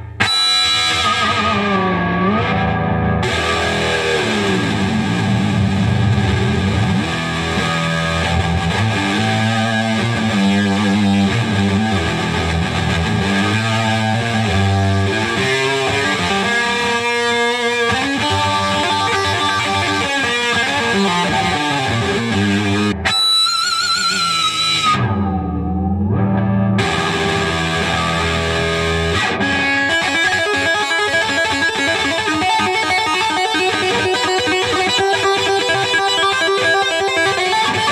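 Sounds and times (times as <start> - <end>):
distorted electric guitar: 0.0 - 37.9.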